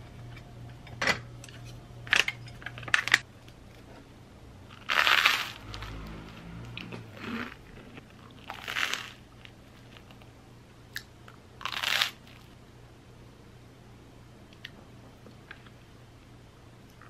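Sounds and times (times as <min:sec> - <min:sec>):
crunchy bites into toast: 0:04.8 - 0:06.1, 0:07.4 - 0:10.2, 0:11.6 - 0:12.5.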